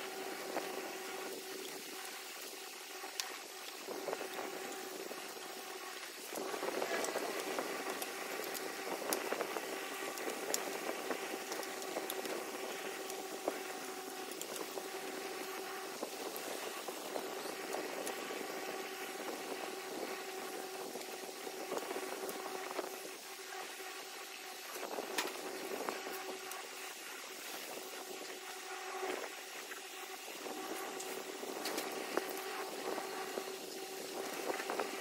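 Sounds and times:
steady hum: 0.0s - 35.0s.

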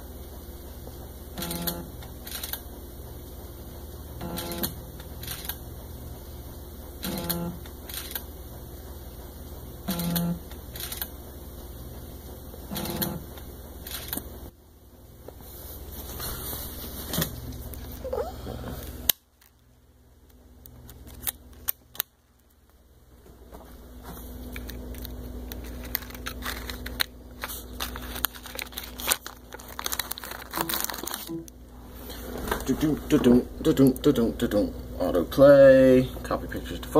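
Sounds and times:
camera clicks: 1.4s - 2.6s, 7.0s - 8.2s, 10.8s - 11.1s, 13.8s - 14.2s
handling noise: 23.2s - 31.4s.

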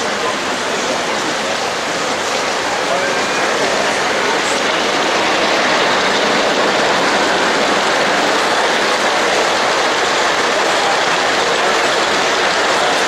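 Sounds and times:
model steam locomotive hissing: 0.0s - 13.0s.

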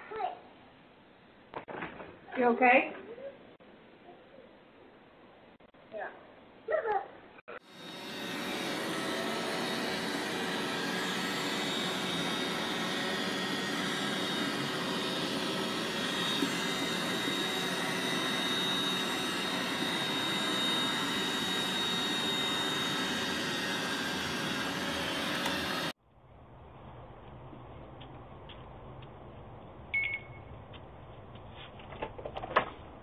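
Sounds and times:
robot vacuum motor and brush hum: 7.6s - 26.0s.

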